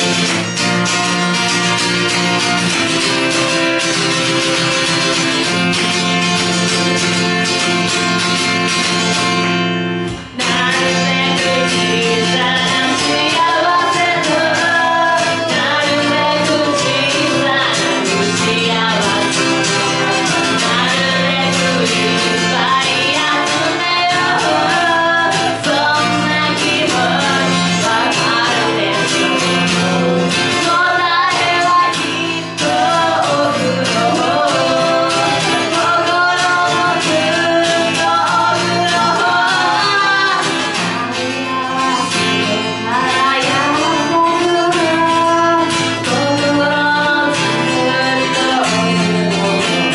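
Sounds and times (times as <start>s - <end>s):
strummed acoustic guitar: 0.0s - 49.9s
woman singing: 10.1s - 49.9s.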